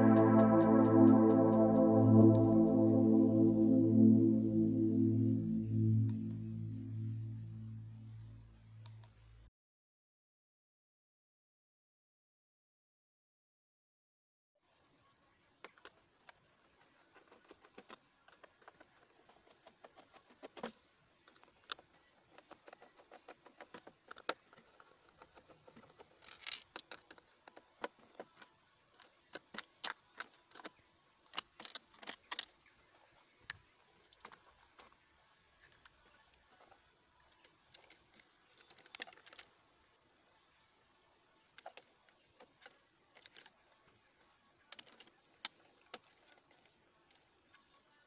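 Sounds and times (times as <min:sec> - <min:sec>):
clicks and rattles of small screws: 0:22.4 - 0:28.4, 0:37.7 - 0:39.5.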